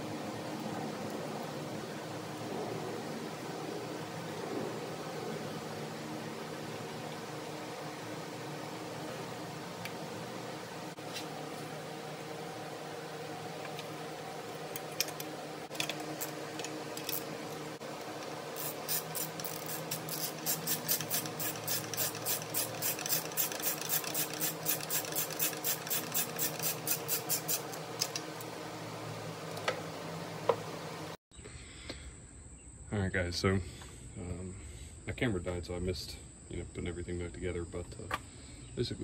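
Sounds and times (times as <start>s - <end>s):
steady low hum: 0.0s - 39.0s
ratchet wrench clicking: 18.6s - 28.2s.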